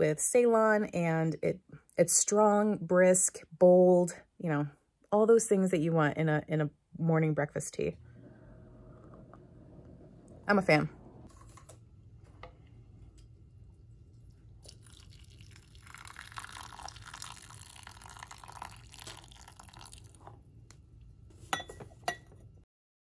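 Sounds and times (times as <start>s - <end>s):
water pouring from a kettle: 12.9s - 20.5s.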